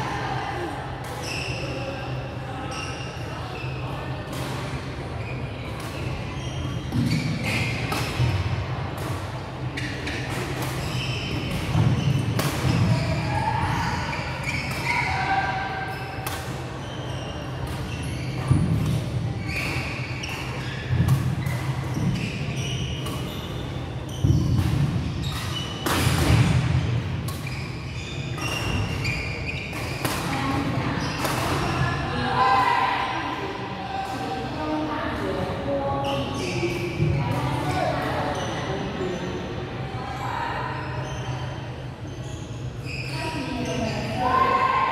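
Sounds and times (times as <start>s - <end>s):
shoe squeaks: 1.2s - 4.1s, 5.2s - 8.3s, 9.7s - 25.9s, 27.3s - 32.0s, 35.9s - 37.1s, 40.3s - 44.7s.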